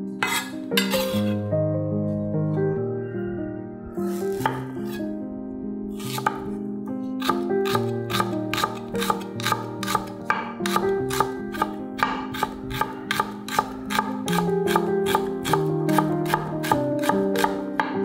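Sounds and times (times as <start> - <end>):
soft background music: 0.0 - 18.0
knife chopping on wooden board: 6.0 - 6.5, 7.2 - 18.0.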